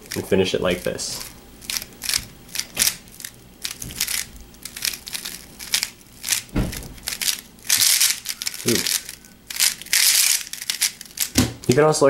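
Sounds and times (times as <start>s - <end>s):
speed cube clicking: 0.0s - 11.9s
heavier knock: 6.5s - 7.0s.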